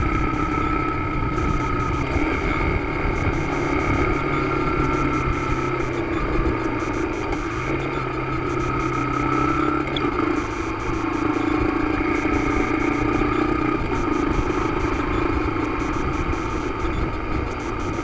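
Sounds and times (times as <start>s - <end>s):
motorcycle engine running: 0.0s - 18.0s
road and wind noise: 0.0s - 18.0s.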